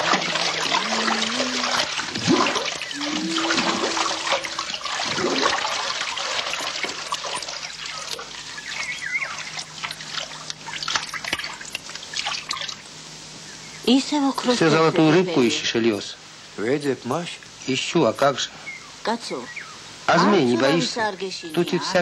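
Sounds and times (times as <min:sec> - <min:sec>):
water splashing and trickling: 0:00.0 - 0:12.9
short low tones: 0:03.0 - 0:04.6.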